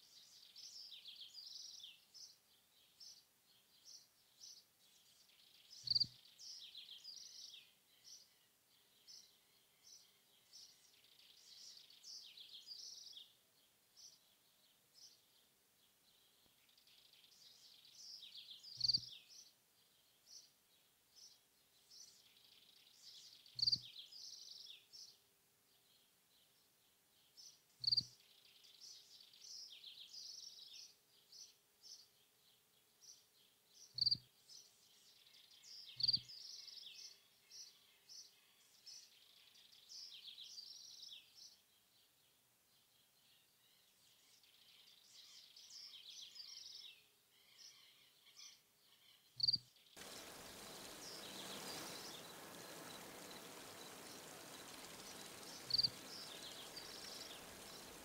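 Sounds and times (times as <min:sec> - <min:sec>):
birds chirping: 0:49.2 - 0:58.0
insects chirping: 0:50.0 - 0:58.0
small waterfall rushing: 0:50.0 - 0:58.0.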